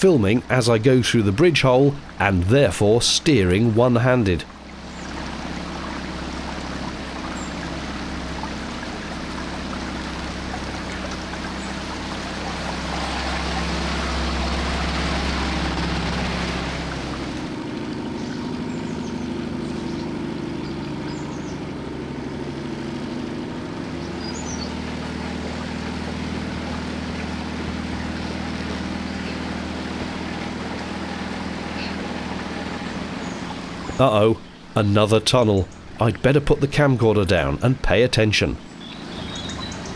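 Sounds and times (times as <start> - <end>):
outboard motor running: 0.0 - 39.9
water washing along hull: 0.0 - 39.9.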